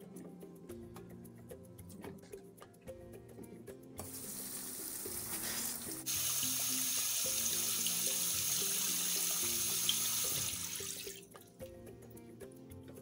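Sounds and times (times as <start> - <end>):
kitchen tap running into bowl: 4.0 - 11.2.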